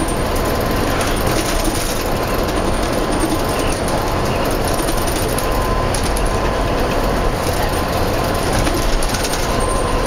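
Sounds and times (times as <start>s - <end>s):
bus engine and road noise: 0.0s - 10.0s.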